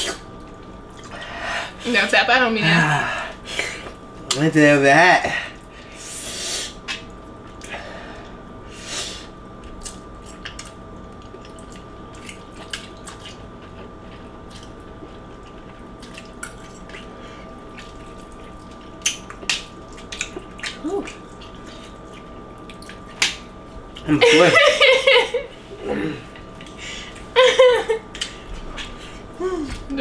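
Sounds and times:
faint steady hum: 0:00.0 - 0:30.0
mouth eating sounds: 0:17.8 - 0:23.2.

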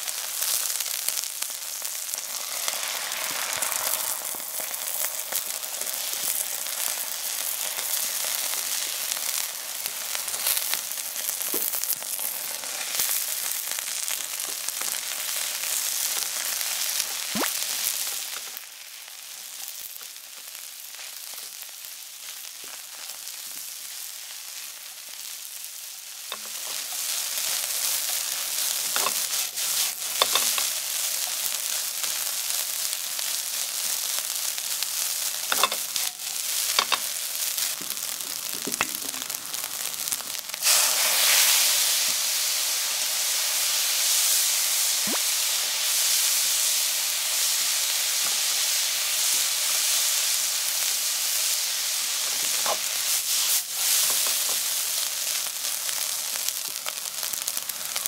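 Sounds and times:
rice sizzling in a frying pan: 0:00.0 - 0:58.0
spatula scraping and knocking pan: 0:26.3 - 0:30.8, 0:35.5 - 0:37.2, 0:53.9 - 0:54.7.

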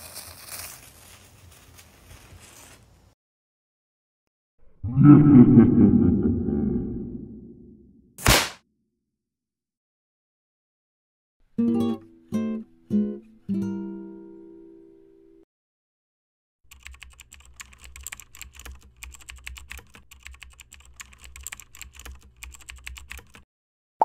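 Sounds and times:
keyboard typing clicks: 0:16.7 - 0:23.4.

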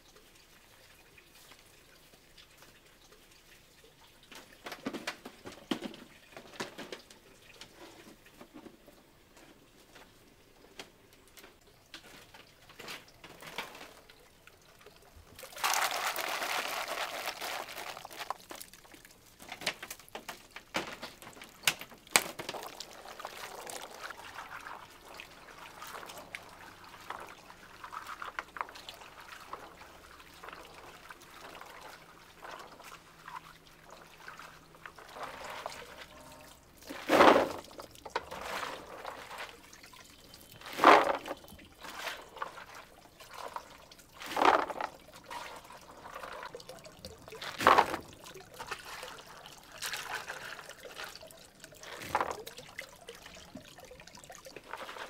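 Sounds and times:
quiet water sounds: 0:00.0 - 0:55.0
water pouring in surges: 0:11.5 - 0:55.0.

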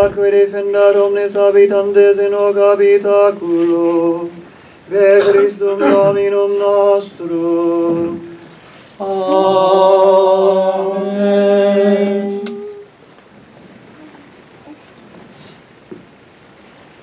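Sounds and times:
unaccompanied liturgical chant: 0:00.0 - 0:12.9.

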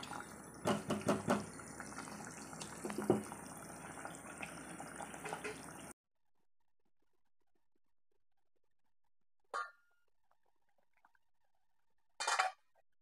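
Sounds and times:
curry bubbling in a pot: 0:00.0 - 0:06.0.

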